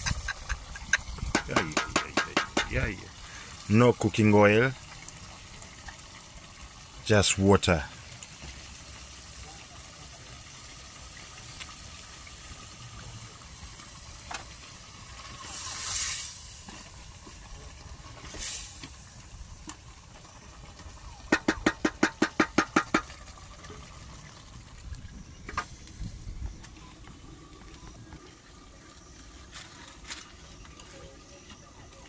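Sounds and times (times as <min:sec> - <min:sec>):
pot hissing: 0:00.0 - 0:03.7, 0:12.2 - 0:26.6
sharp knocks: 0:01.3 - 0:02.8, 0:21.3 - 0:23.1.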